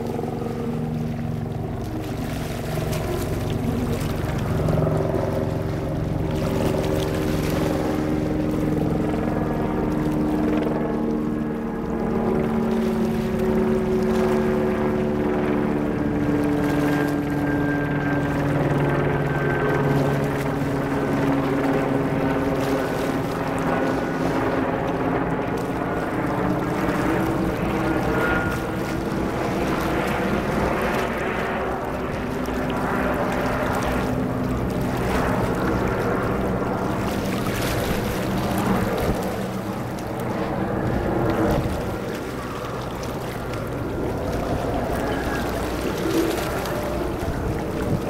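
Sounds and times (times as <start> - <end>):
engine droning: 0.0 - 48.0.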